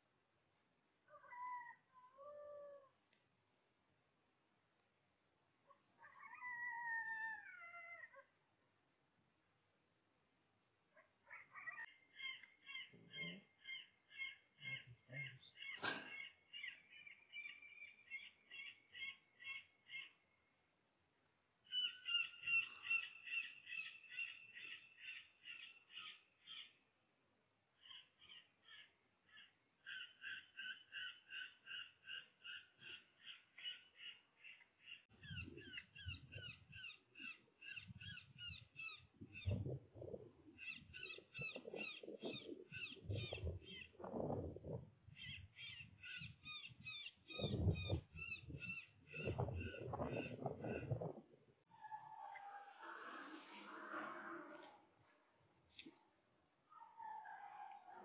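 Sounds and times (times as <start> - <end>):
high harsh animal calls: 51.7 - 54.8.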